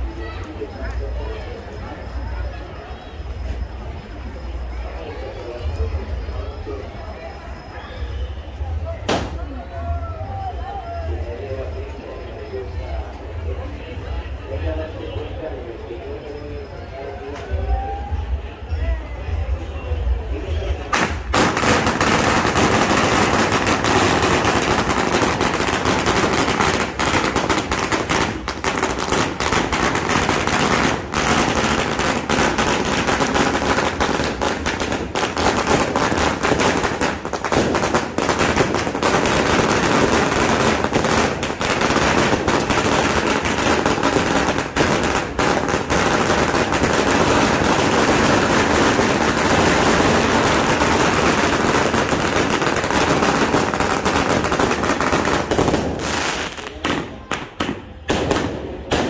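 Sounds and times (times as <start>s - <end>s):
firecrackers crackling: 9.0s - 9.6s, 20.6s - 59.0s.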